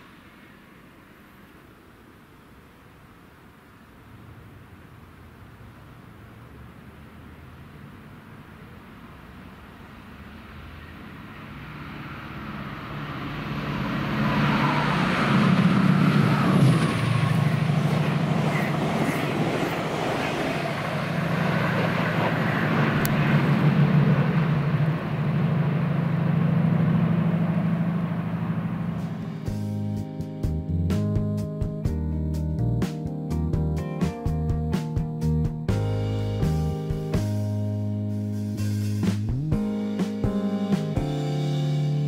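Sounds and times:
train wheel and rail noise: 0.0s - 29.7s
diesel engine drone: 4.2s - 42.0s.

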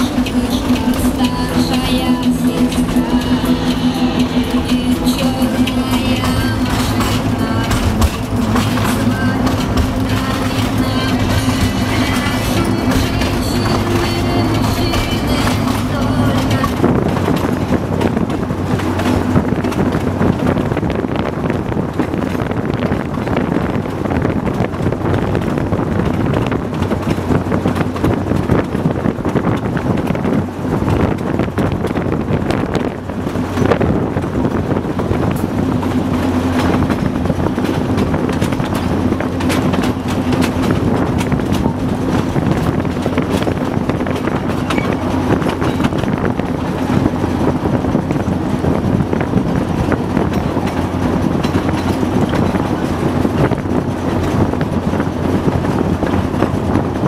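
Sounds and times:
steady high hum: 0.0s - 26.6s
diesel locomotive drone: 0.0s - 57.0s
wheels knocking over rails: 0.0s - 57.0s.

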